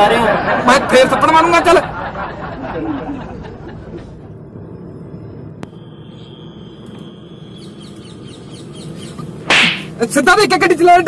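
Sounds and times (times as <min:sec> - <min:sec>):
faint bird chirps: 0:04.5 - 0:09.4.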